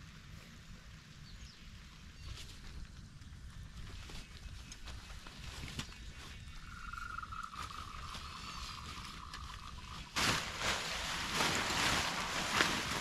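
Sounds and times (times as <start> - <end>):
tent fabric rustling and flapping: 7.5 - 13.0.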